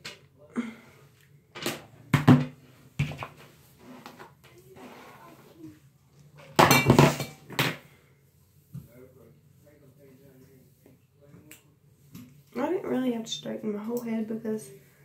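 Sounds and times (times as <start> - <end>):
hard objects clattering and knocking: 6.3 - 7.9.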